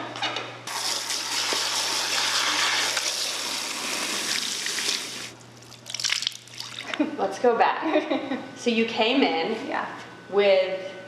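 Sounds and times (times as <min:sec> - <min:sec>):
water running in a sink: 0:00.7 - 0:07.0.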